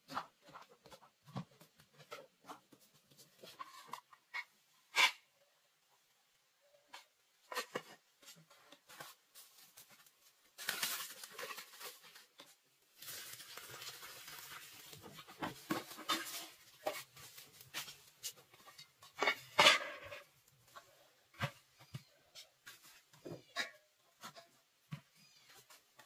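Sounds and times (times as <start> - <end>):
metal pot scraping and clattering: 7.0 - 9.0, 13.5 - 24.7.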